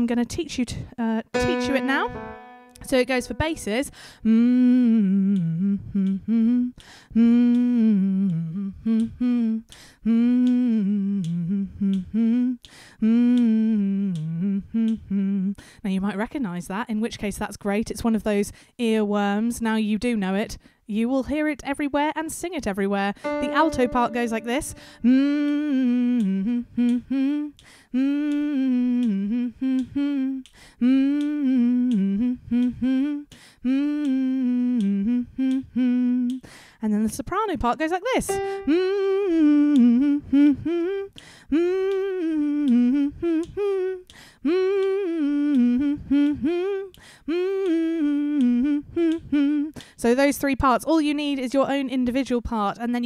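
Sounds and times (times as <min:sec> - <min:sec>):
woman humming into a microphone: 0:01.4 - 0:15.6, 0:23.2 - 0:36.4, 0:38.2 - 0:49.7
quick breaths: 0:03.9 - 0:04.3, 0:06.8 - 0:07.1, 0:09.7 - 0:10.0, 0:12.6 - 0:13.0, 0:27.6 - 0:27.9, 0:30.5 - 0:30.8, 0:33.3 - 0:33.6, 0:36.4 - 0:36.8, 0:41.2 - 0:41.5, 0:44.1 - 0:44.4, 0:47.0 - 0:47.3.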